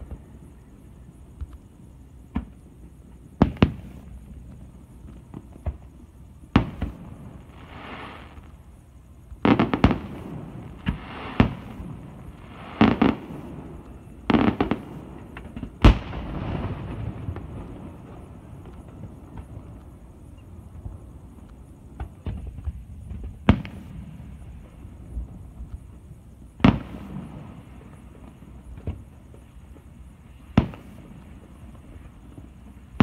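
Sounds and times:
firework crackling hiss: 2.3 - 33.0
firework bangs: 9.4 - 19.7.

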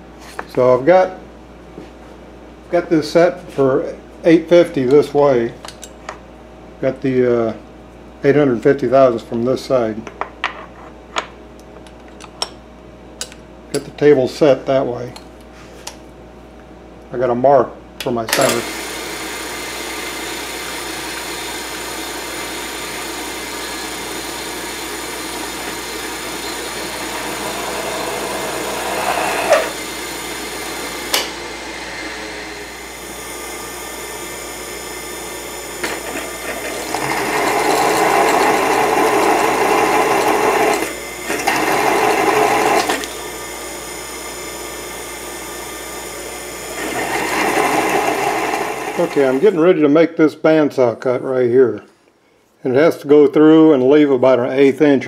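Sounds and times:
mill spindle humming: 18.0 - 49.6
drill bit cutting metal: 18.4 - 34.3, 35.8 - 43.2, 46.7 - 49.4
drill squeal: 26.3 - 29.8.

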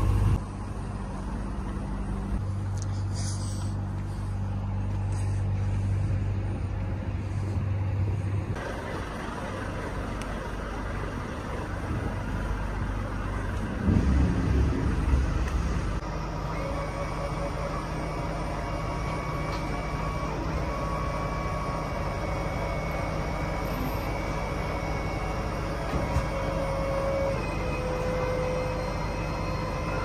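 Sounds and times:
truck engine running: 0.0 - 30.0
low thuds: 13.7 - 16.0.

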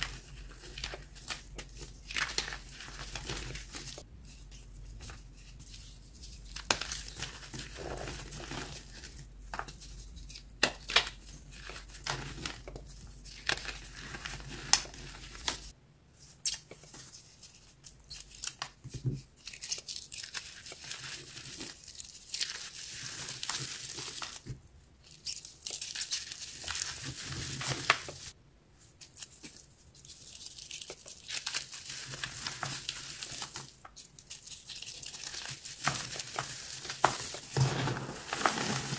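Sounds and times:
gritty crumbling powder: 0.0 - 15.6, 34.9 - 38.9
dry powder blocks snapping: 36.0 - 38.9
powder sifting hiss: 37.6 - 38.9.

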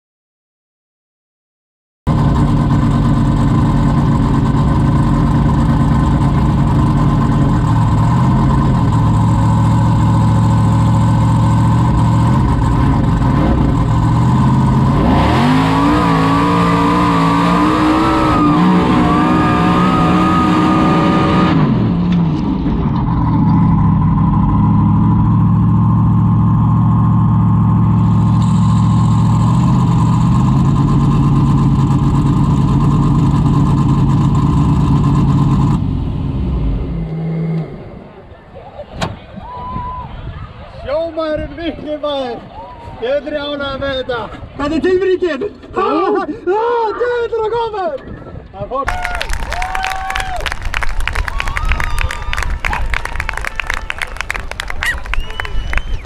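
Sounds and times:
buggy engine revving: 2.1 - 38.6.

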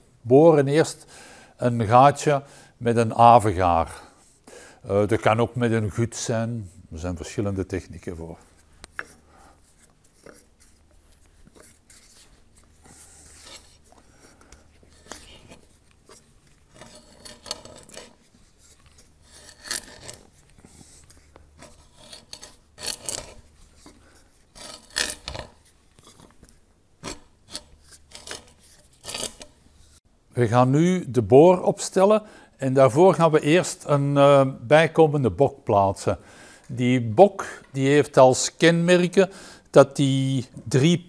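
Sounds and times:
hand auger rasping into wood: 14.8 - 26.3, 27.0 - 29.6.

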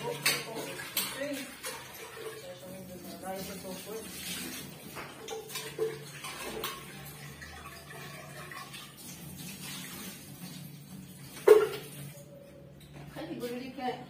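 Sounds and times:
dishes clinking: 0.0 - 1.4, 11.4 - 12.2
running water: 0.0 - 13.8.

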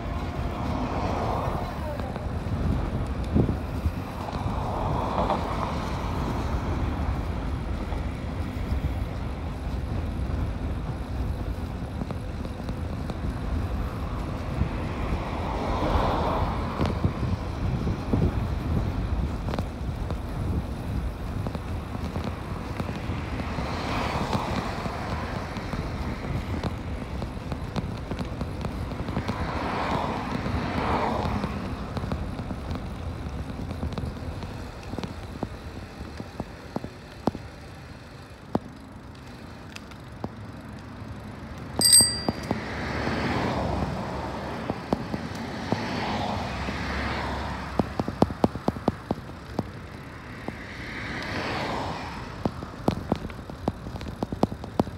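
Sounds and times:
wind rushing over microphone: 0.0 - 12.3, 13.1 - 34.0.

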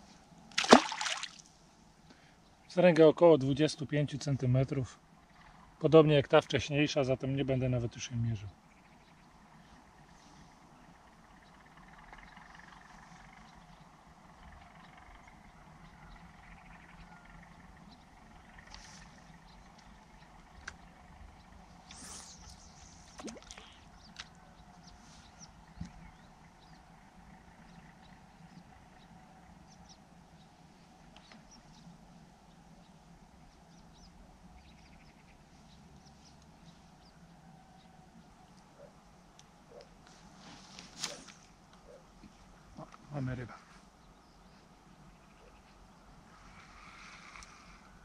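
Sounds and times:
faint low hum: 0.0 - 48.0.

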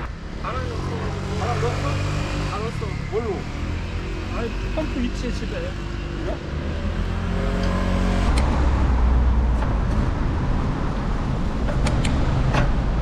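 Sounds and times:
vehicle engine humming: 0.0 - 13.0
rushing noise with deep rumble: 6.8 - 13.0
sharp clicks: 11.6 - 12.7.

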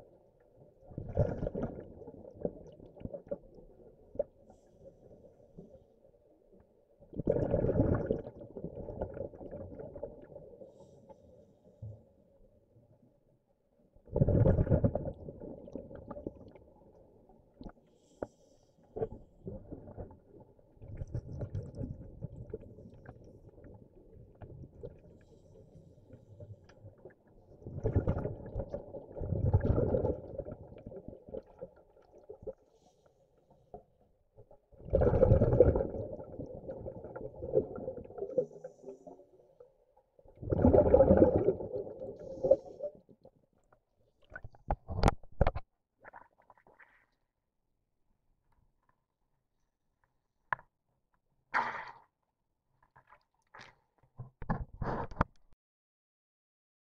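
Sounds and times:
underwater exhaled bubbles rumble: 0.0 - 10.7, 14.0 - 17.7, 19.0 - 25.4, 26.1 - 32.6, 33.8 - 43.4
diver exhaling bubbles: 7.1 - 10.1, 14.1 - 16.4, 27.6 - 31.6, 34.8 - 39.1, 40.4 - 43.0.

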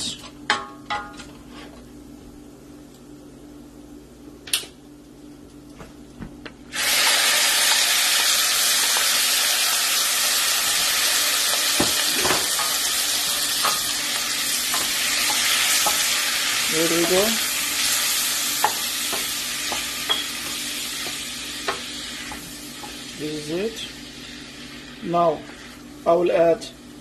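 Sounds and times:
rice sizzling in hot oil: 6.7 - 26.4.

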